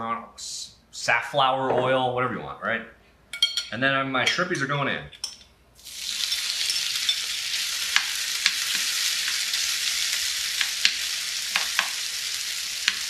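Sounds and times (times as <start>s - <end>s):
shrimp sizzling in oil: 5.8s - 13.0s
metal utensil clicking on pan: 7.9s - 9.4s, 10.6s - 12.0s.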